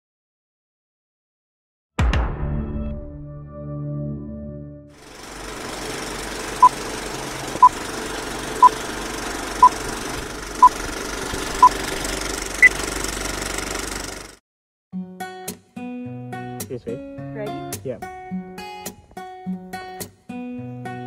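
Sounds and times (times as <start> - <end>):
film projector clattering: 5.0 - 14.4.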